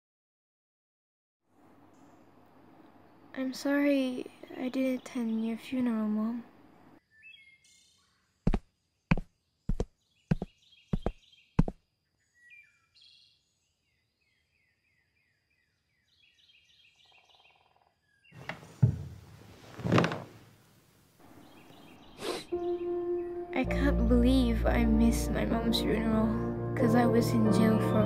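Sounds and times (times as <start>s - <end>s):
faint birdsong: 1.6s - 19.2s, 21.2s - 28.0s
footsteps: 8.5s - 11.8s, 18.4s - 20.5s
thump of sitting on a bench: 18.4s - 20.4s.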